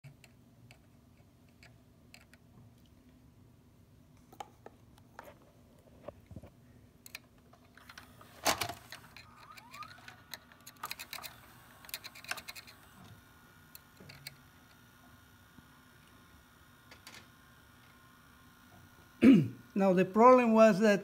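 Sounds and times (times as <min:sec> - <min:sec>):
faint steady hum: 0:00.0 - 0:21.0
cassette mechanism clicking and rattling: 0:07.1 - 0:13.0
short rising whine: 0:09.2 - 0:14.4.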